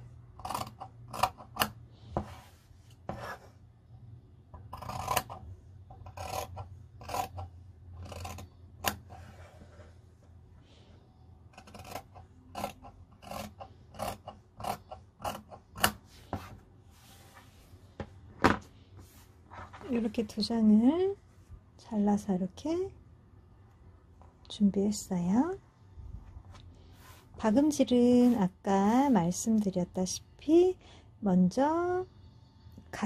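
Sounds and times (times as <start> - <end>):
scissors snipping fabric: 0.4 - 1.8, 4.7 - 5.4, 6.0 - 9.1, 11.6 - 16.0.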